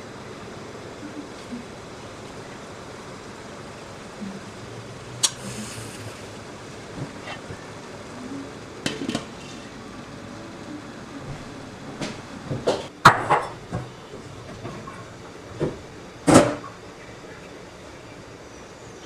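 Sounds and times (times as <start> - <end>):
steamer pot hissing: 4.2 - 10.6.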